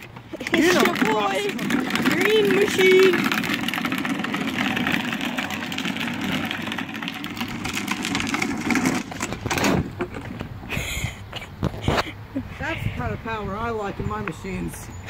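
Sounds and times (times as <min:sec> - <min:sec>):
wheels scraping in a spin: 0:00.0 - 0:10.8
plastic wheels grinding on asphalt: 0:00.0 - 0:12.0.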